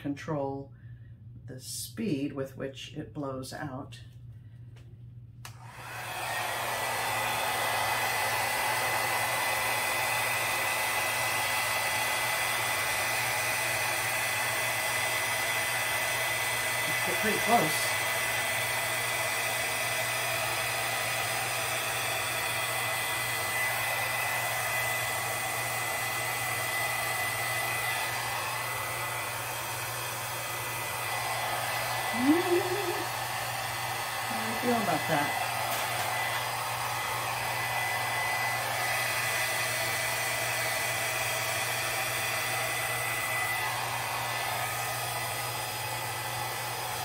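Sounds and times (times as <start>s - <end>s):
hair dryer whining: 4.8s - 47.0s
brief vocal sounds: 32.2s - 33.1s.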